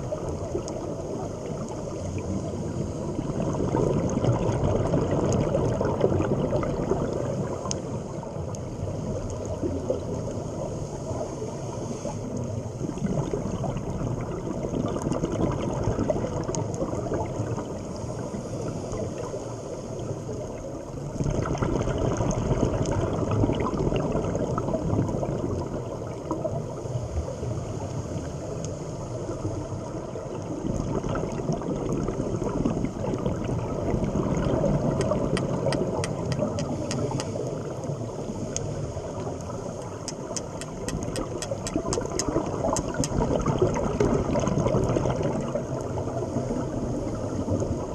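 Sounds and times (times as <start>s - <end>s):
underwater bubbling and gurgling: 0.0s - 47.9s
faint clicks: 7.6s - 7.8s, 35.0s - 37.5s, 38.5s - 38.7s, 39.4s - 43.3s.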